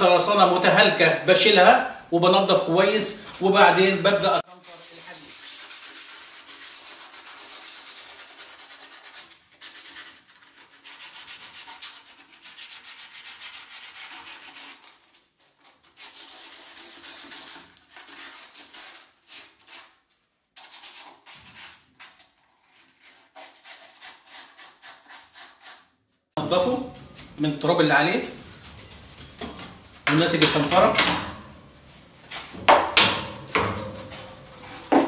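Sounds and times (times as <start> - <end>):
sandpaper rasping on steel: 4.4 - 20.0, 22.8 - 25.9.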